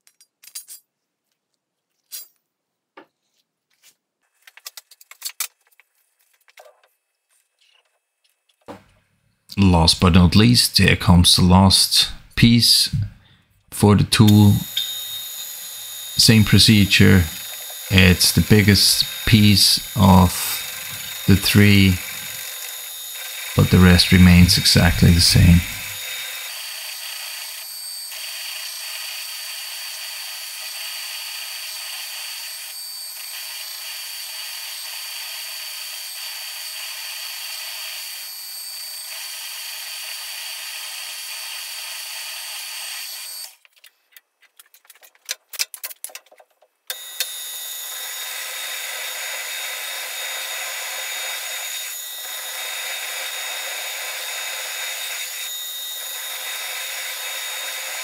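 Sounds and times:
metal lathe running: 0:14.2 - 0:43.5, 0:46.9 - 0:58.0.

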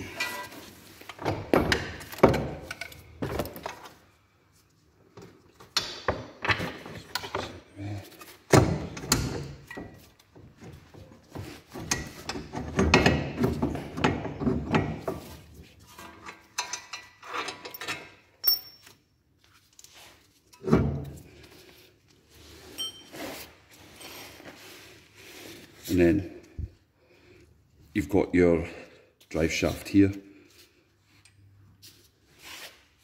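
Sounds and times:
metal clunks and clicks: 0:11.7 - 0:15.2.

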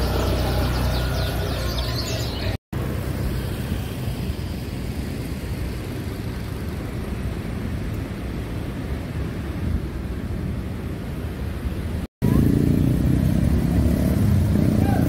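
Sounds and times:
caged birds chirping: 0:00.0 - 0:02.6
motorcycle engine: 0:00.0 - 0:04.4, 0:12.2 - 0:15.0
road traffic noise: 0:00.0 - 0:15.0.

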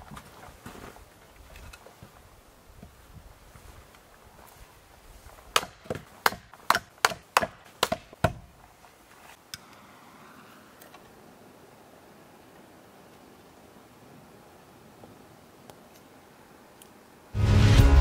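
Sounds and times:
firewood chopping strikes: 0:05.5 - 0:08.5.

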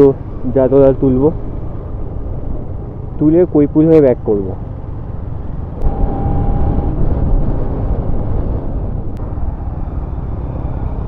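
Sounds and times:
motorcycle engine riding: 0:00.0 - 0:11.0
wind rush: 0:04.7 - 0:11.0.

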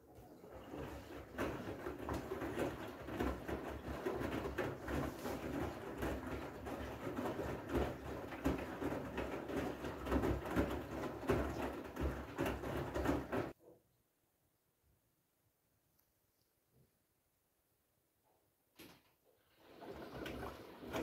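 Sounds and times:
washing machine clothes sloshing: 0:00.0 - 0:13.6, 0:19.4 - 0:21.0.

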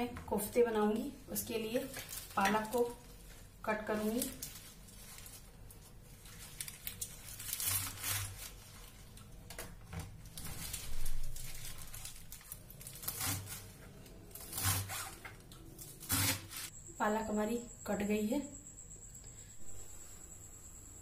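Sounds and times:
leaves being cut: 0:06.3 - 0:08.9, 0:10.4 - 0:16.7.

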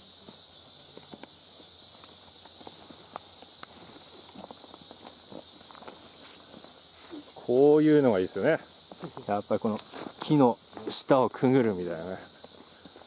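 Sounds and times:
footsteps on forest trail: 0:00.0 - 0:13.0
high-pitched insect chorus: 0:00.0 - 0:13.0
twigs snapping underfoot: 0:01.0 - 0:06.8.

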